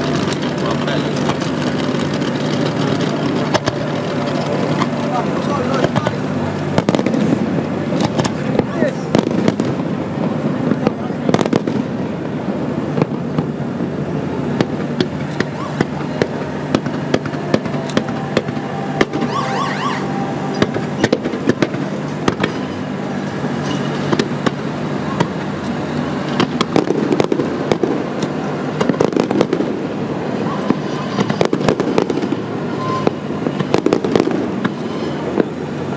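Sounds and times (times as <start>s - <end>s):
fireworks bursting with sharp bangs: 0.0s - 35.9s
rising firework whistle: 15.4s - 28.0s, 28.6s - 35.8s.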